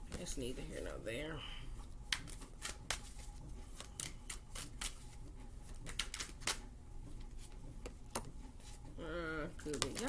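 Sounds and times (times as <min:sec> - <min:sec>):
cards being shuffled: 0:02.1 - 0:06.7, 0:09.6 - 0:10.0.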